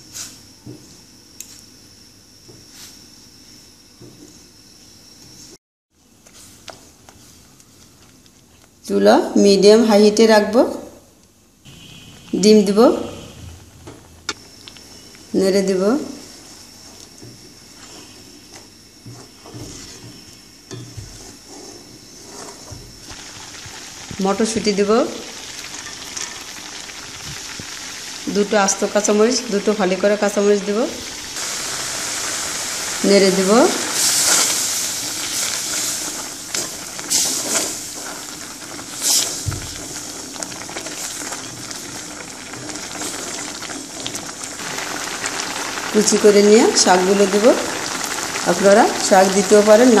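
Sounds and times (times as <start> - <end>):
gravy sizzling: 11.7 - 50.0
spatula scraping a pan: 20.8 - 22.9.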